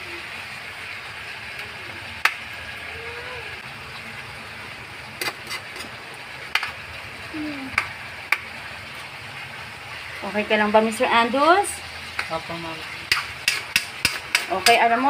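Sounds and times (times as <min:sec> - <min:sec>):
chicken sizzling in a pan: 0:00.0 - 0:15.0
spatula knocking and scraping pan: 0:13.1 - 0:15.0.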